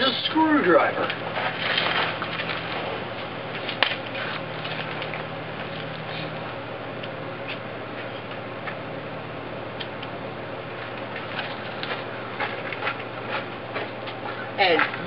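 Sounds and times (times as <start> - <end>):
outdoor background hiss: 0.0 - 15.0
footsteps crunching on gravel: 1.1 - 6.4, 10.8 - 15.0.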